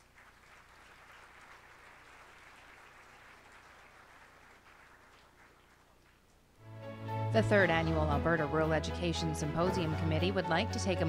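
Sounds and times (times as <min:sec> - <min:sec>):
faint applause: 0:00.0 - 0:06.4.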